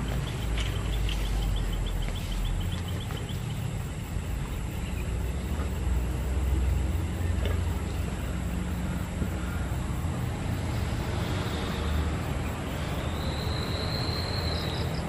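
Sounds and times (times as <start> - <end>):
faint ticks: 0.0 - 3.7
vehicle engine rumbling: 0.0 - 15.0.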